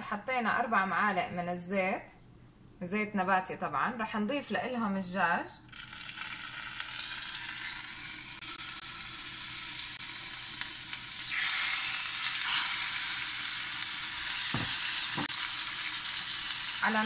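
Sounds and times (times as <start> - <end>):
chicken sizzling in oil: 5.7 - 17.0.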